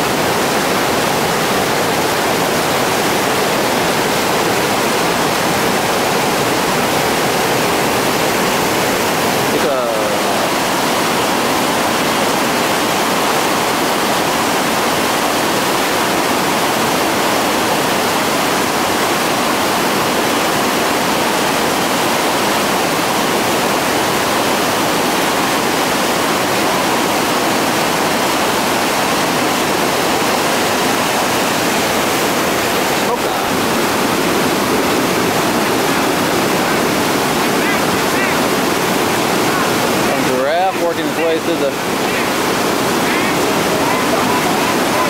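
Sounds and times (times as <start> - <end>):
rapids rushing: 0.0 - 45.0.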